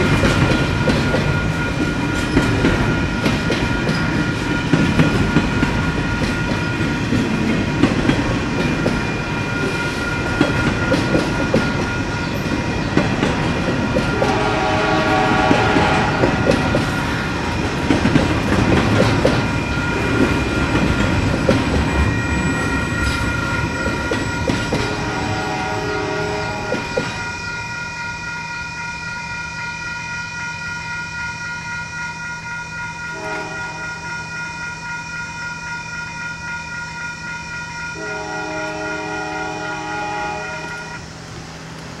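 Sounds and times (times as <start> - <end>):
freight train clattering over crossing: 0.0 - 27.8
crossing bell ringing: 0.0 - 41.2
distant train horn: 14.0 - 17.3, 24.7 - 27.3, 33.1 - 34.2, 38.0 - 41.1.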